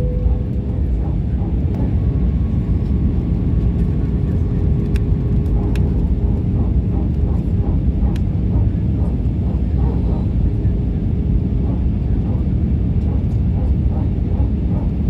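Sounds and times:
airliner cabin engine roar: 0.0 - 15.0.

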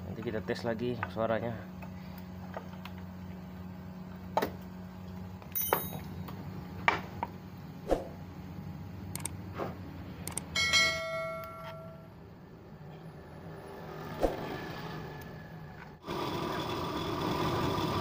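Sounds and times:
steady low hum: 0.0 - 16.0
metal clinks and knocks: 5.5 - 6.4, 10.6 - 12.1
bell-like metallic ring: 5.6 - 6.2, 10.6 - 12.1.

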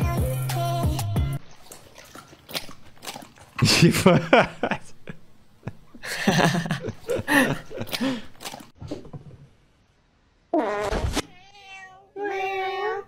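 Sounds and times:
cat meowing: 11.3 - 13.0.

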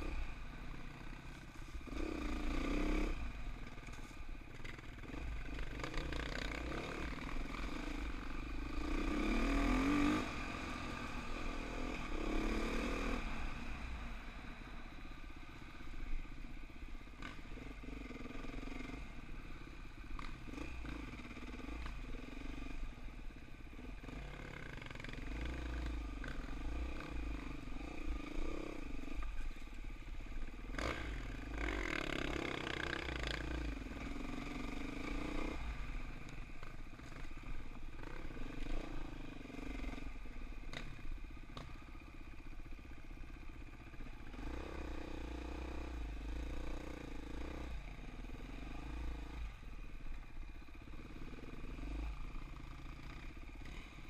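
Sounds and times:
dirt bike engine revving: 4.7 - 13.3, 30.6 - 35.8.

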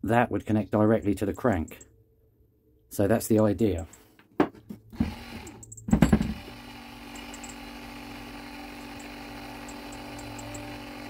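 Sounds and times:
electric motor humming: 5.0 - 11.0.

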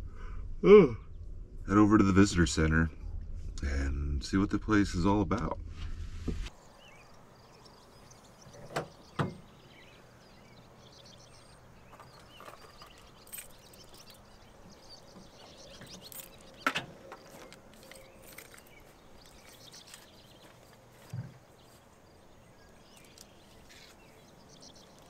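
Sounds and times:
faint bird chirps: 6.5 - 25.0
truck hatch knocks and clunks: 8.5 - 9.5.

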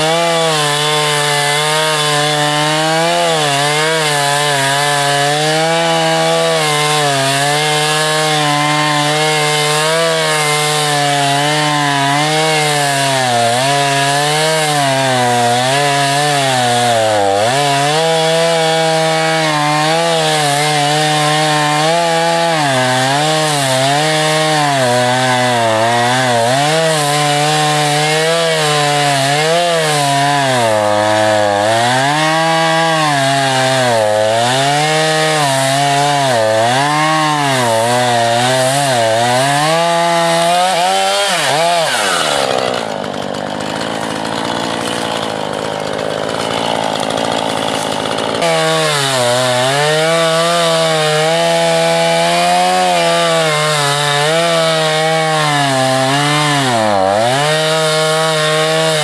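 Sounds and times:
chainsaw cutting through log: 0.0 - 59.0.

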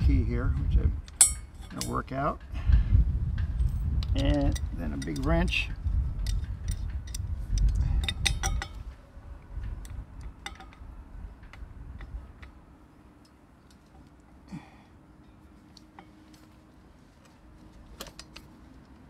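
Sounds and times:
wrench clinking on metal: 1.2 - 2.0, 3.6 - 7.2, 8.0 - 8.8
low rumble: 2.4 - 12.6.

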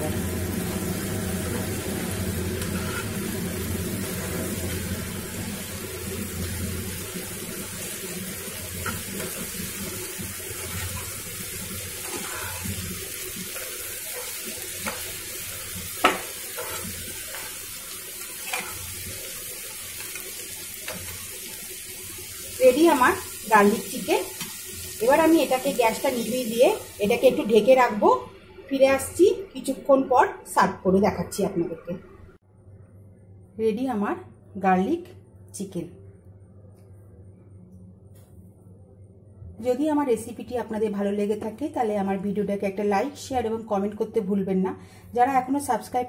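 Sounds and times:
food sizzling in oil in a pan: 0.0 - 27.6
metal spatula scraping and tapping pan: 2.6 - 3.2, 16.0 - 17.6, 18.4 - 18.9.

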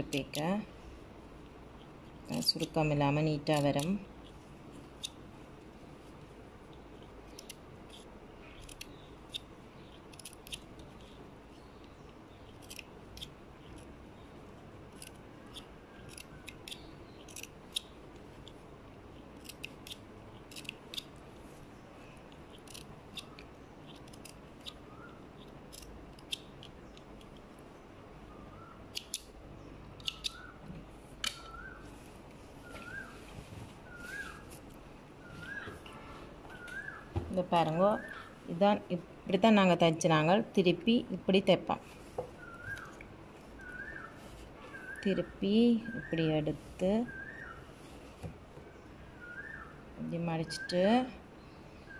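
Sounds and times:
scissors snipping cloth: 0.0 - 0.6, 2.3 - 5.2, 6.7 - 11.2, 19.2 - 21.1.

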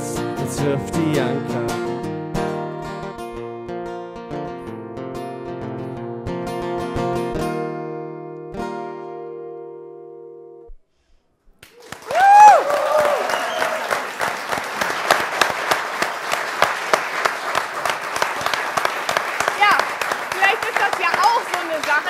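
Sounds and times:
audience applause: 11.6 - 22.0
audience cheering: 11.7 - 22.0.

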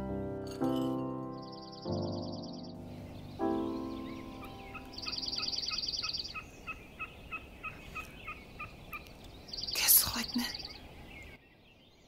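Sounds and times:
piano chord: 0.0 - 5.5.

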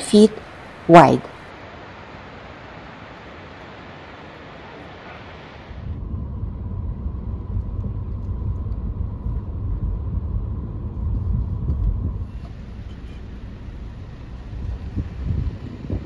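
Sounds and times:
wind buffeting microphone: 5.7 - 16.0.

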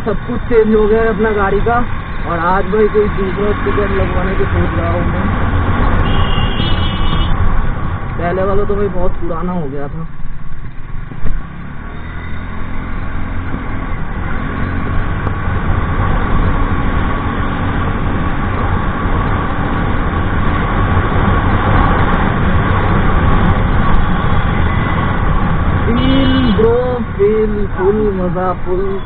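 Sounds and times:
scooter engine and road noise: 0.0 - 29.0
wind rushing over microphone: 12.4 - 27.7.

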